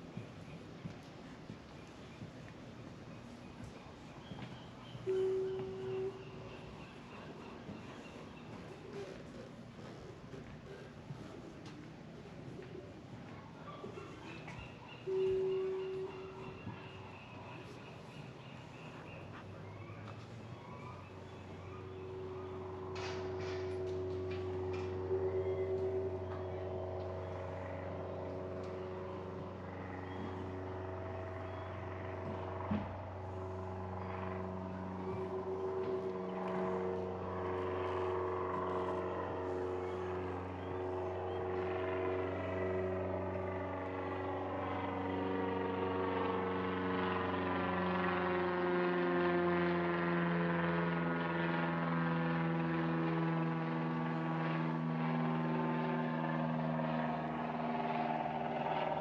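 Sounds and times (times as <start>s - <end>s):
engine droning: 0.0s - 59.0s.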